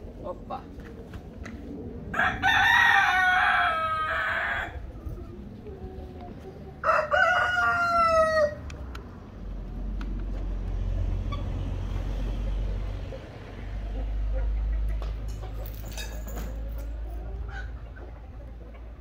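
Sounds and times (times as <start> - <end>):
rooster crowing: 2.1 - 4.9, 6.8 - 8.6.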